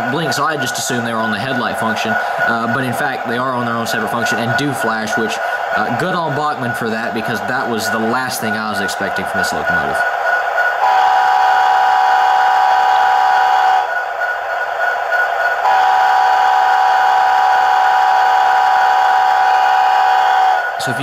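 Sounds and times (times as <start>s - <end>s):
model train air horn blasts: 10.8s - 13.9s, 15.6s - 20.6s.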